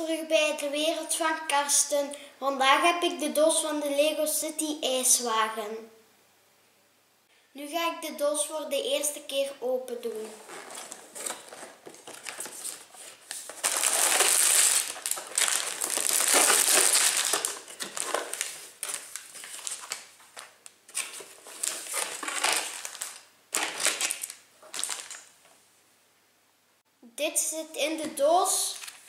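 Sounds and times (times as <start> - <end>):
plastic bags crinkling: 10.2 - 25.4.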